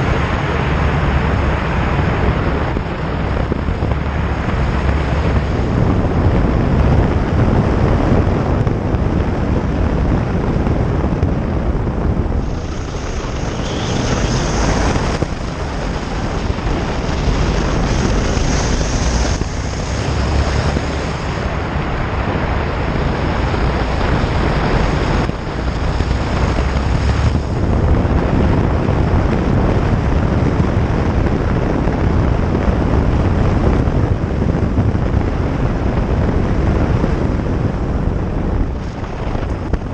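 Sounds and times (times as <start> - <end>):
motorcycle engine: 0.0 - 28.4
wind rushing over microphone: 0.0 - 39.9
thin high whistle: 13.5 - 14.6.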